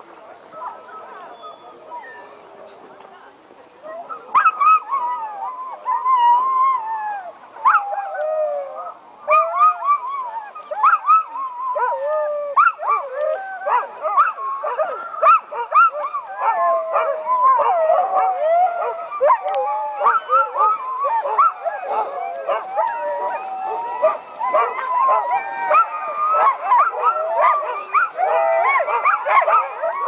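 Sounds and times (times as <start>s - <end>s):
dogs yipping: 0.0s - 2.6s, 8.8s - 30.0s
sled dogs howling: 0.0s - 30.0s.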